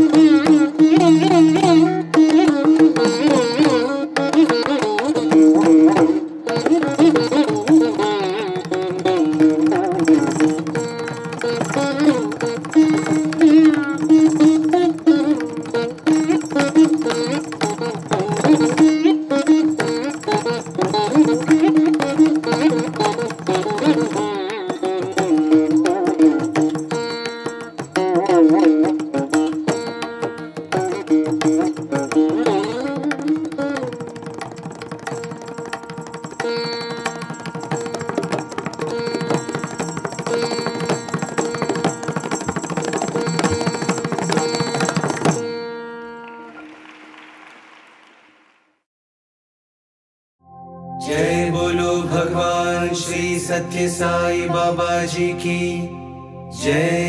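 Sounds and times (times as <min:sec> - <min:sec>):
tabla: 0:00.0 - 0:48.9, 0:51.0 - 0:57.0
pitch-bending melody: 0:50.4 - 0:57.0.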